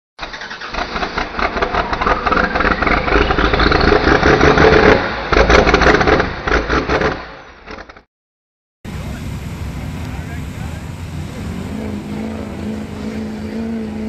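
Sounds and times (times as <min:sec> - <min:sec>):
engine running hard with whine: 0:00.8 - 0:07.6, 0:08.9 - 0:14.0.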